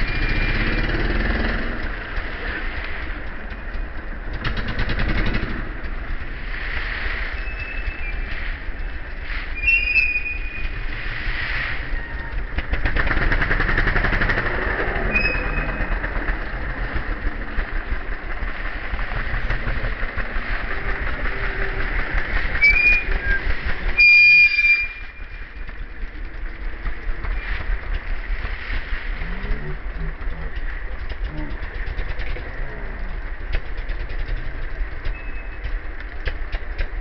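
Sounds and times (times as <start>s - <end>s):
motorcycle engines revving: 0.0s - 9.6s, 10.6s - 37.0s
high whistle-like chirps: 9.6s - 10.8s, 22.6s - 23.4s, 24.0s - 25.2s.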